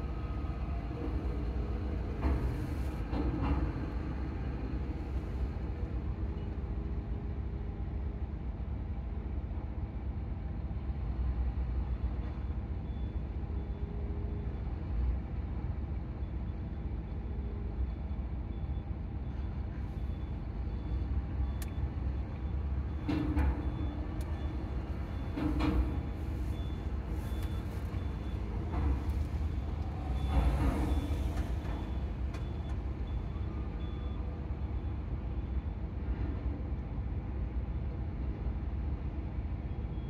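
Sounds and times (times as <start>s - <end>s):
heavy vehicle engines rumbling: 0.0s - 40.0s
faint high beep: 23.6s - 34.9s.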